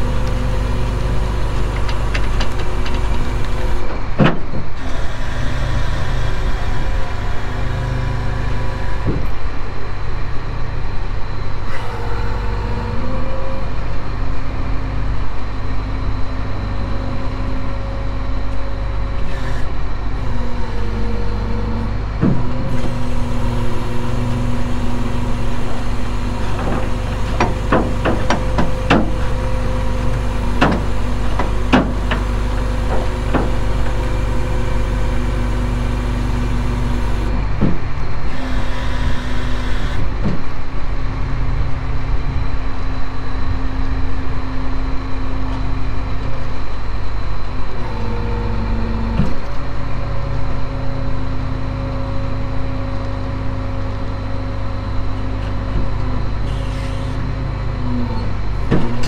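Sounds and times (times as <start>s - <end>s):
hydraulic bed and winch hum: 0.0s - 59.0s
truck engine running: 0.0s - 59.0s
sharp clicks and knocks: 1.6s - 4.6s, 26.4s - 29.3s, 30.0s - 34.0s.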